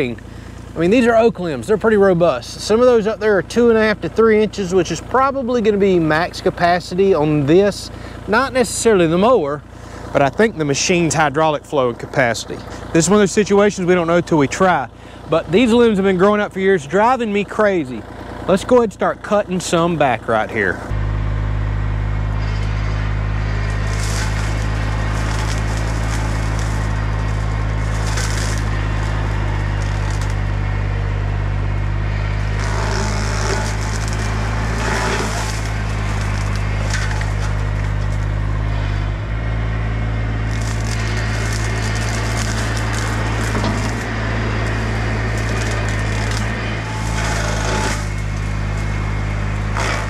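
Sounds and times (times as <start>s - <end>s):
steady machine drone: 0.0s - 50.0s
wood cracking and splintering: 22.4s - 39.1s, 40.4s - 50.0s.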